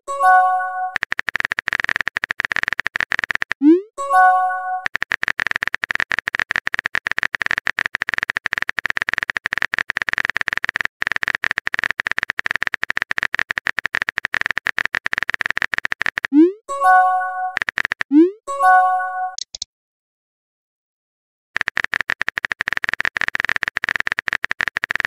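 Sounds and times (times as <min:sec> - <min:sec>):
message sent pop: 0:00.1 - 0:19.6
rapid typing clicks: 0:00.9 - 0:16.5, 0:17.4 - 0:18.2, 0:21.6 - 0:25.0.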